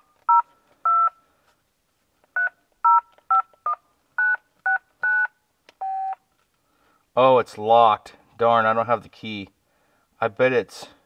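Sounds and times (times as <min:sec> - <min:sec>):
phone keypad beeps: 0:00.3 - 0:01.2, 0:02.4 - 0:06.2.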